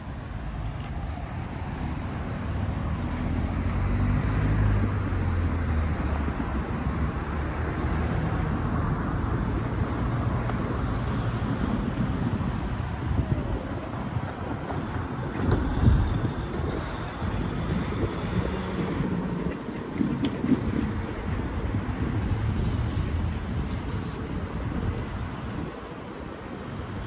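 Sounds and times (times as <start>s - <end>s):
traffic rumble: 0.0s - 27.0s
vehicle passing close by: 1.3s - 13.3s.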